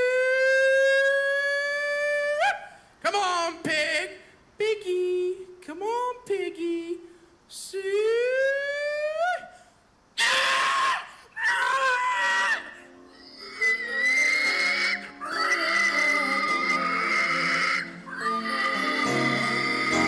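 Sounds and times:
man imitating pig squeals: 0:00.0 - 0:02.8, 0:10.2 - 0:20.0.

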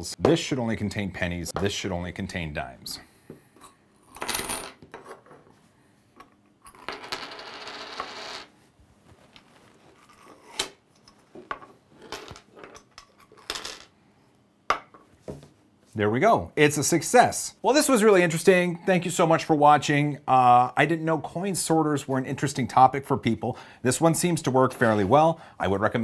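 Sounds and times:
coins clinking on wooden table: 0:04.0 - 0:05.5, 0:06.2 - 0:08.5, 0:10.0 - 0:13.9.

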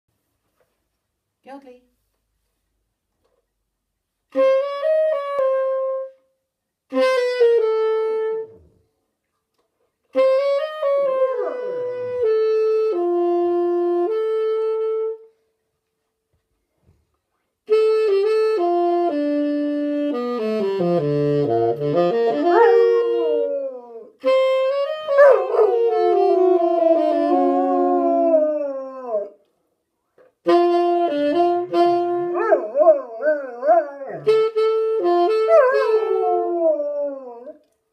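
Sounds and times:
saxophone playing held notes: 0:04.3 - 0:06.3, 0:06.9 - 0:08.7, 0:10.1 - 0:15.3, 0:17.7 - 0:29.3, 0:30.4 - 0:37.6
dog howling: 0:22.5 - 0:24.1, 0:25.2 - 0:29.4, 0:32.4 - 0:34.3, 0:35.5 - 0:37.6.

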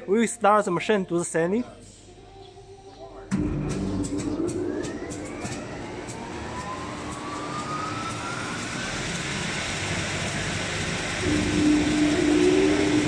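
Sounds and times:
machine running noise: 0:03.3 - 0:13.0
motor steady hum: 0:03.3 - 0:13.0
sanding machine motor whine: 0:04.2 - 0:13.0.

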